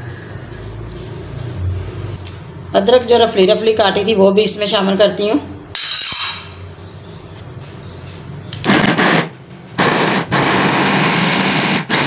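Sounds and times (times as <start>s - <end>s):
electric food chopper running: 8.6s - 12.0s.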